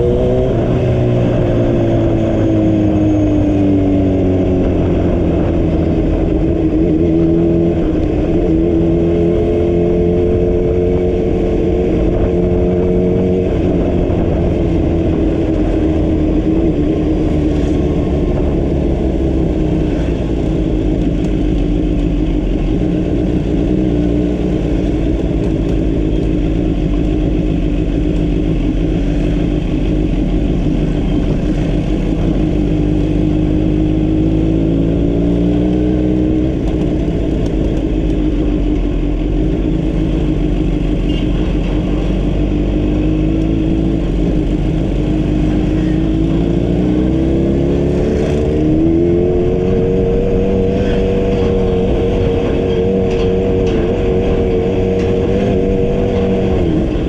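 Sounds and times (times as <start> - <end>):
road and wind noise: 0.0 - 57.0
vehicle engine running: 0.0 - 57.0.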